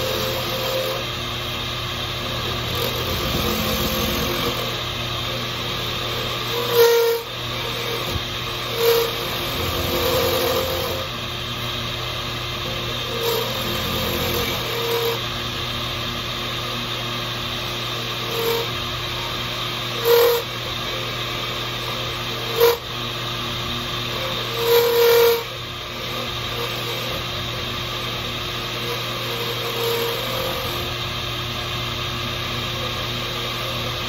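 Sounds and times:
tool cutting antler: 0.0s - 1.1s, 2.2s - 11.1s, 12.6s - 15.2s, 19.9s - 20.5s, 24.2s - 27.3s, 28.8s - 30.9s
lathe motor running: 0.0s - 34.0s.

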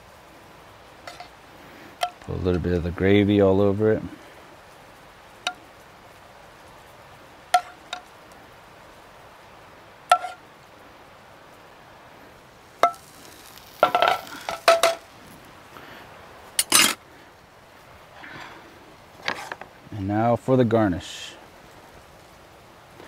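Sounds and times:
metal spoon clinking on pan: 16.6s - 17.0s.

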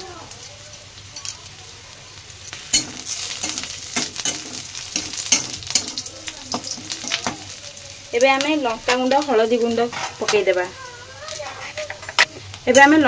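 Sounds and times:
onions sizzling in hot oil: 0.0s - 13.0s
metal spatula scraping a pan: 2.5s - 7.4s, 8.9s - 10.5s.

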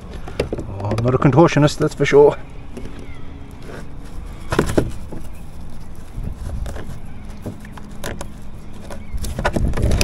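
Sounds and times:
knocks and scrapes in kayak: 2.7s - 10.0s.

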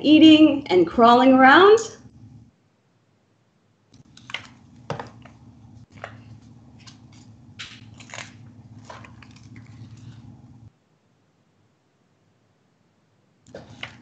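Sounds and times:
low hum: 1.9s - 2.5s, 4.0s - 10.7s
book pages rustling: 4.0s - 10.7s, 13.5s - 14.0s.

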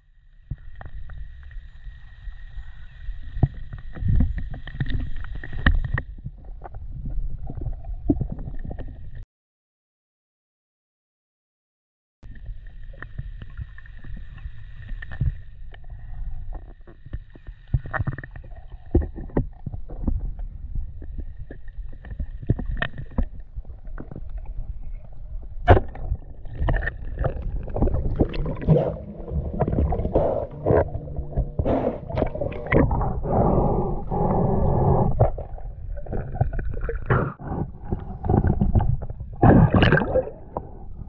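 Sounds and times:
underwater rumble of moving water: 0.0s - 9.2s, 12.3s - 41.0s
underwater clicks and knocks: 17.0s - 24.5s, 25.6s - 33.2s.

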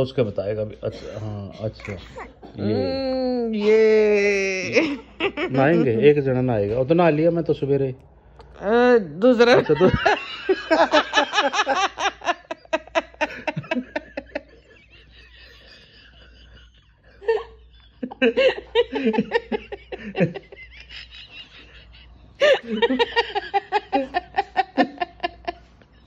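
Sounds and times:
adult laughing heartily: 9.5s - 26.0s.

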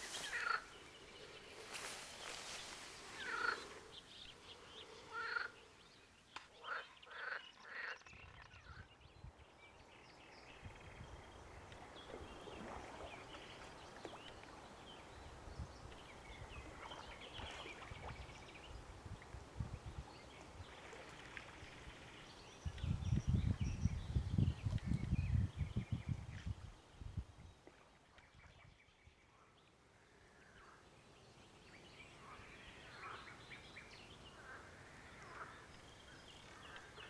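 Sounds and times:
birds calling: 0.0s - 8.9s
frogs calling: 0.2s - 0.7s, 3.2s - 3.8s.

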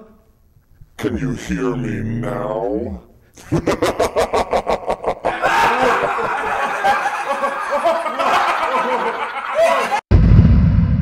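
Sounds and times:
people laughing: 3.4s - 10.0s.

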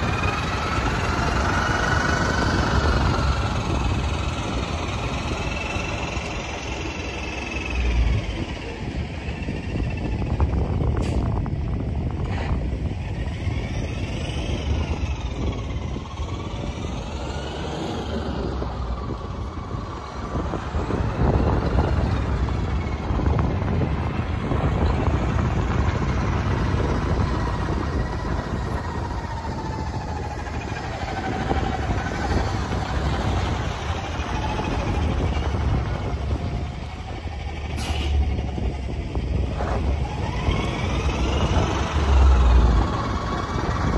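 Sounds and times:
truck engine revving: 0.0s - 43.9s.

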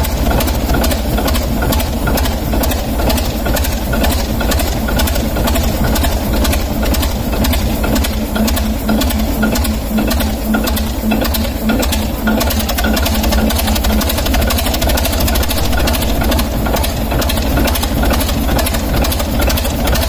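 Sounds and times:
diesel engine idling rumble: 14.2s - 20.0s.

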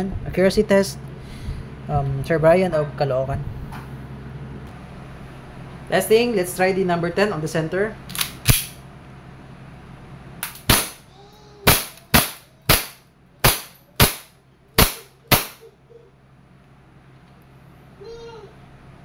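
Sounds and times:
airsoft pistol shots: 10.4s - 11.0s, 11.7s - 15.6s.

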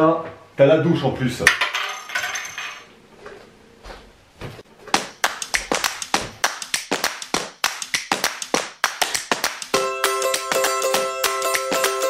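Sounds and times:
rhythmic hand claps: 4.9s - 12.0s.

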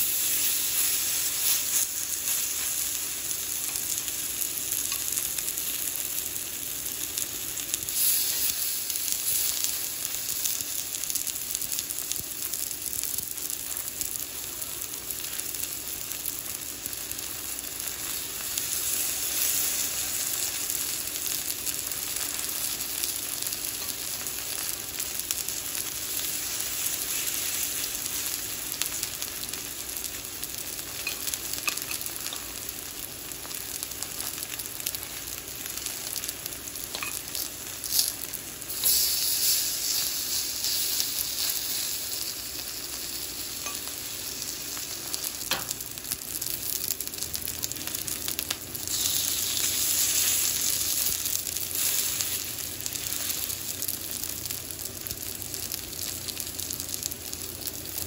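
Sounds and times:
food sizzling in a pan: 0.0s - 58.0s.

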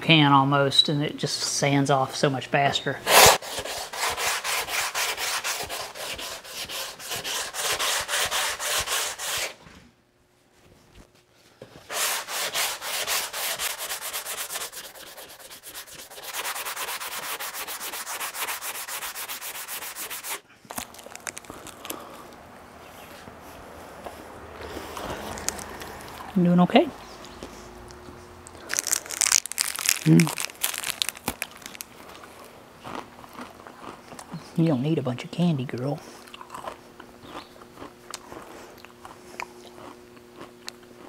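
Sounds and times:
sandpaper scraping filler: 3.1s - 9.6s, 11.9s - 20.4s.

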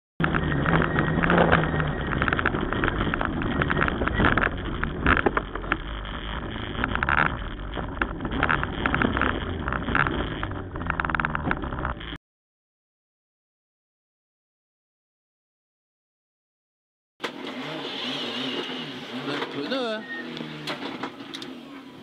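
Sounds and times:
rally car engine running hard: 0.2s - 12.2s, 17.2s - 22.0s
road and wind noise: 0.2s - 12.2s, 17.2s - 22.0s
sharp knocks and rattles: 0.2s - 12.2s.

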